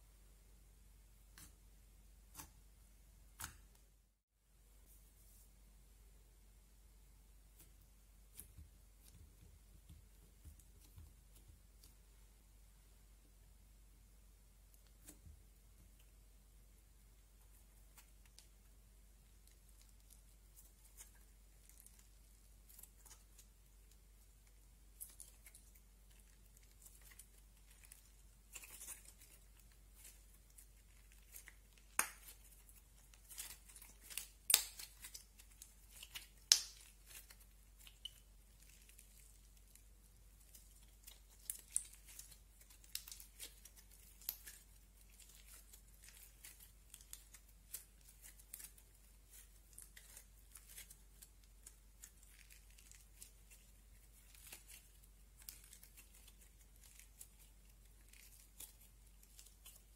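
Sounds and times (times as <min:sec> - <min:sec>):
slime crackling and clicking: 0:33.4 - 0:38.2.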